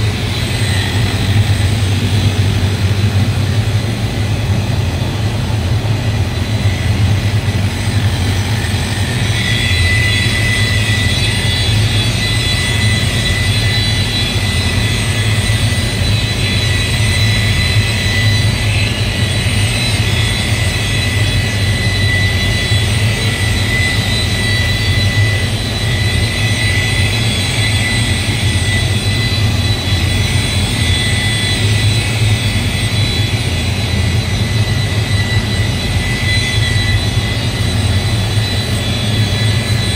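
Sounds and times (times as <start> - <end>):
machine drone: 0.0 - 39.9
thin high whine: 0.0 - 39.9.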